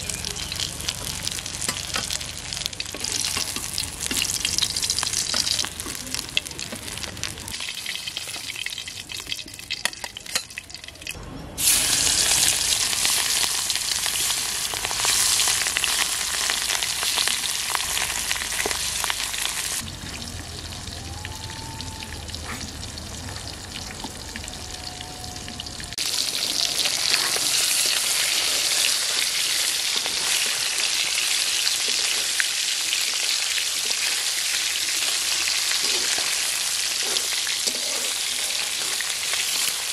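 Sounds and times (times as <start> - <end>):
fish sizzling in hot oil: 0.1 - 19.9, 26.0 - 39.9.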